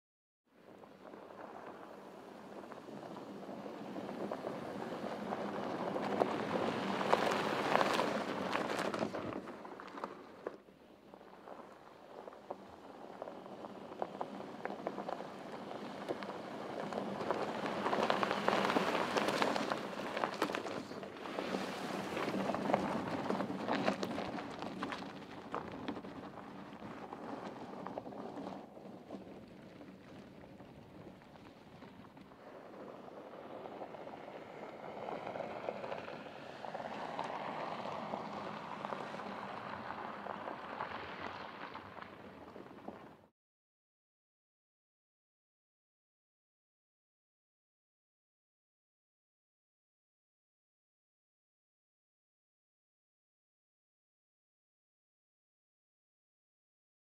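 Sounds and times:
tyres crunching over gravel: 0.7 - 43.2
small stones crackling: 11.2 - 21.1, 22.1 - 43.1.

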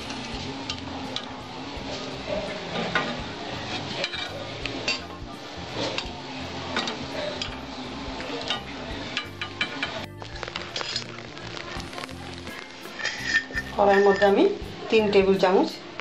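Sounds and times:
utensil clinking against wok: 2.7 - 5.2, 5.8 - 11.2, 12.2 - 15.2.

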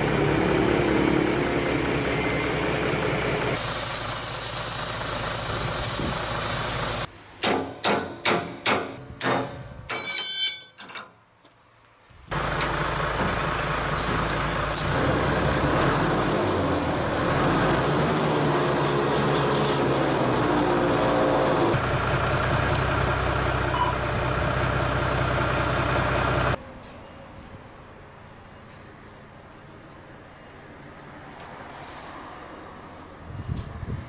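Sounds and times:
truck engine idling: 0.0 - 7.1, 12.3 - 17.5, 18.2 - 26.6
high hiss: 3.6 - 7.1.

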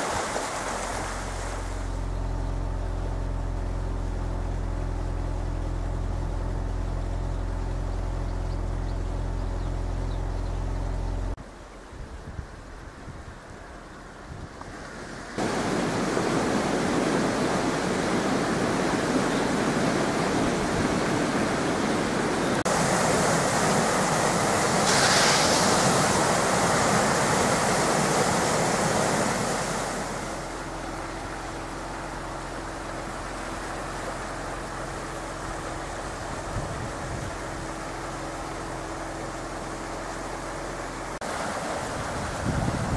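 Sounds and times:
floodwater rushing and churning: 0.0 - 3.9, 14.6 - 42.9.

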